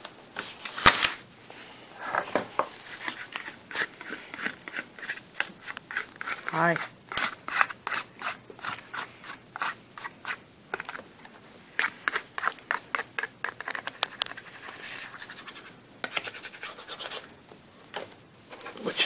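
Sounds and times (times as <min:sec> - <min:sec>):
metal tool scraping paper: 0:02.8 - 0:10.4.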